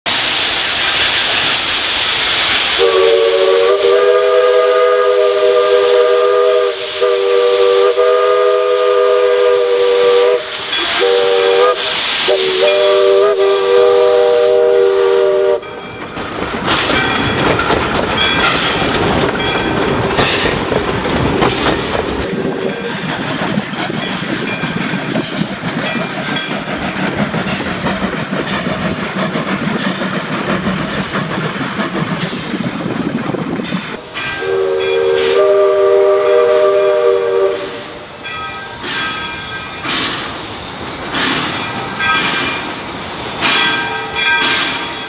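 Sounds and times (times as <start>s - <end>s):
hiss of steam: 0.1s - 15.7s, 21.6s - 45.0s
train clattering over rails: 0.1s - 45.0s
steam locomotive chime whistle: 2.8s - 16.2s, 34.0s - 40.2s.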